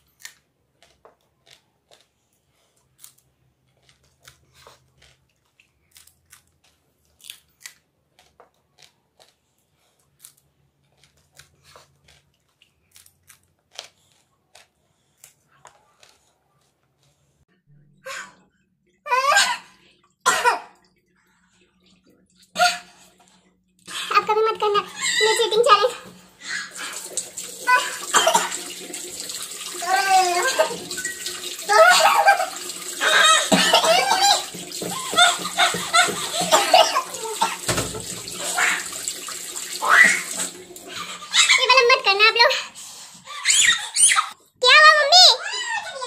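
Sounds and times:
chillies crunching while chewed: 0.0 - 17.4.

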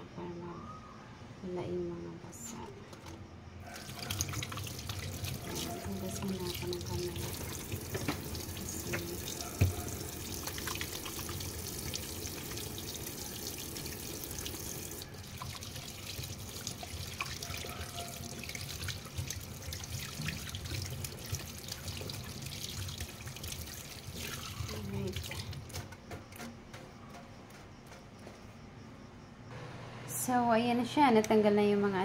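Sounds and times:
faucet water splashing in sink: 3.7 - 26.5.

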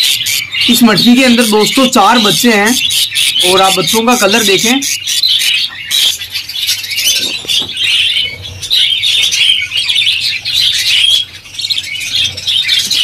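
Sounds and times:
budgerigars chattering: 0.0 - 13.0.

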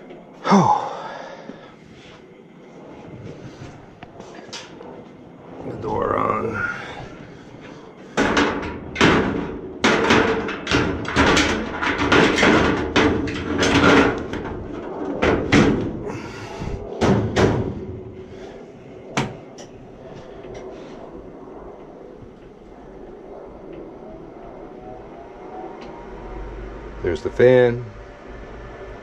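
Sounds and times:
steady hum: 0.0 - 29.0
metal door clanking and rattling: 8.2 - 16.1, 17.0 - 18.2.

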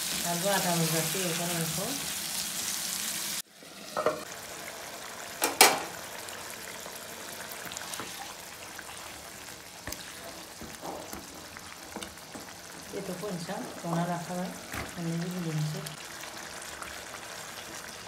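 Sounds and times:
food simmering in pan: 2.0 - 18.0
knocks against pan: 5.4 - 5.9.

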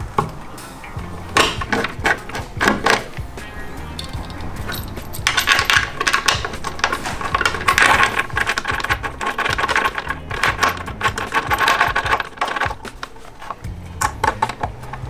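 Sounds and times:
brass fittings clinking and rattling: 1.2 - 3.2, 3.8 - 15.0.

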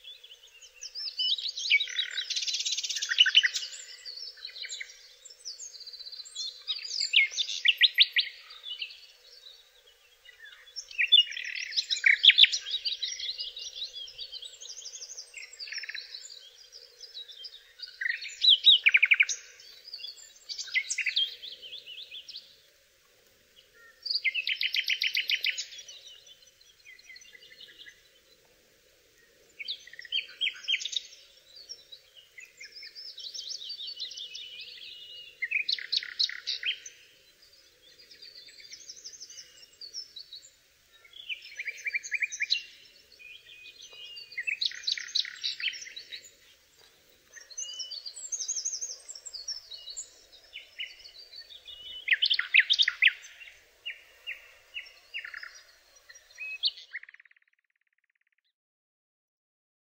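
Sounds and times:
songbird trilling and whistling: 43.4 - 46.2, 47.3 - 55.6, 56.3 - 58.2.

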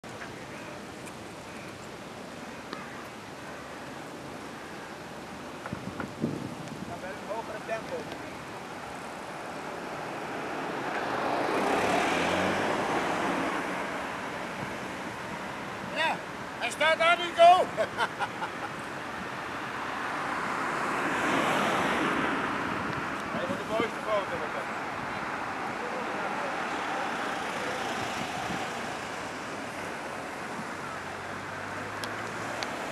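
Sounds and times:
distant road traffic: 0.0 - 32.9
car driving past: 9.8 - 15.1, 19.8 - 32.9.

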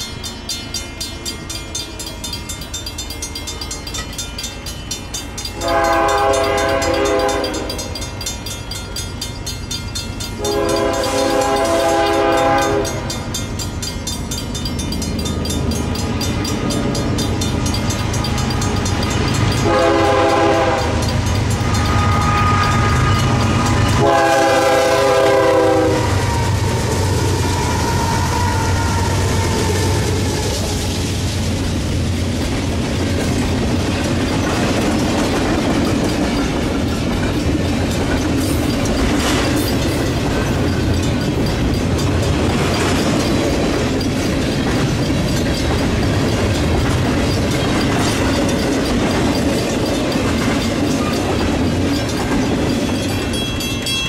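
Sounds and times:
locomotive engines rumbling: 0.0 - 54.0
train air horn: 5.6 - 7.9, 10.4 - 13.1, 19.6 - 30.9.

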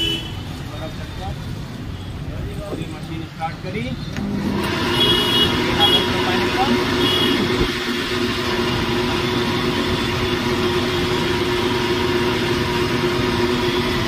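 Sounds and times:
blender motor running: 4.2 - 14.0.

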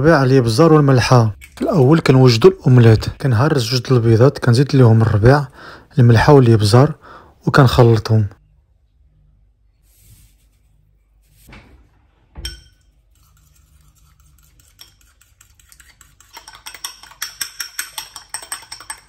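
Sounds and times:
fork beating eggs in a bowl: 12.5 - 19.0.

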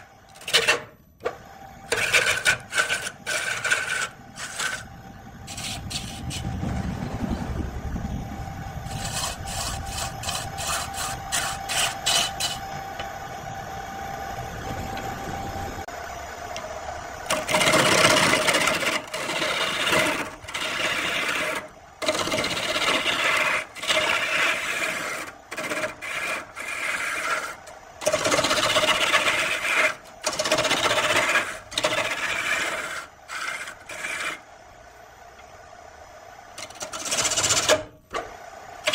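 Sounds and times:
lathe tool scraping wood: 0.0 - 0.9, 1.9 - 6.6, 8.8 - 12.8, 17.2 - 34.5, 36.6 - 38.9.

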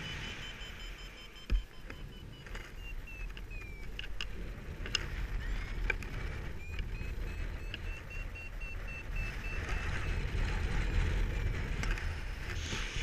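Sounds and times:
variometer beeping: 0.0 - 13.0
wind rushing over microphone: 0.0 - 13.0.

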